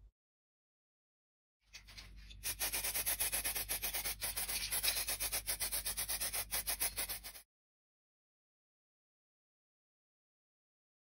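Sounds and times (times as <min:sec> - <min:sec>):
rubbing on wood: 0:02.4 - 0:07.4.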